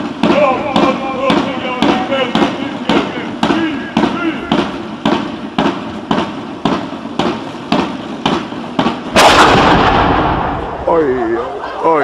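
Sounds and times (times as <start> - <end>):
sharp regular knocks: 0.0 - 10.1
cannon blast: 9.1 - 11.0.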